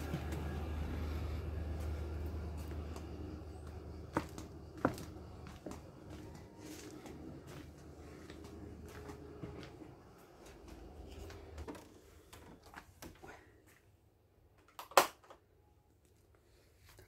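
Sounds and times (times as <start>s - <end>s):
footsteps: 0.0s - 13.0s.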